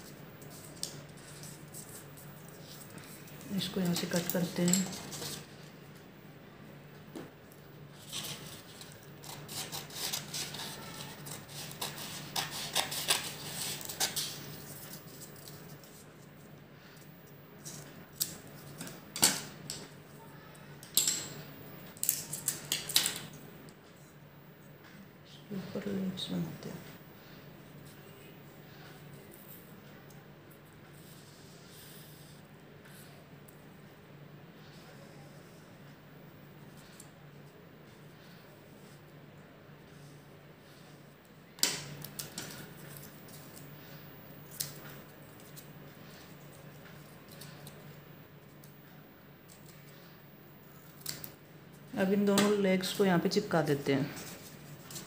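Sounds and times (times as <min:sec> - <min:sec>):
faint steady hum: 0:00.0 - 0:55.0
scissors snipping paper: 0:08.0 - 0:16.0.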